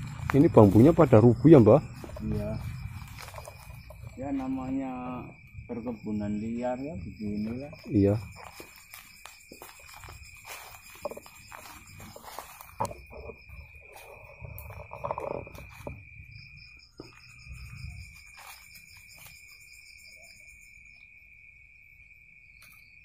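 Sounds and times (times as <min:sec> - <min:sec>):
footsteps through dry undergrowth: 0:00.0 - 0:04.8, 0:07.9 - 0:14.8, 0:15.6 - 0:20.0
crickets trilling: 0:00.0 - 0:23.0
pulsing insect chirp: 0:00.0 - 0:23.0.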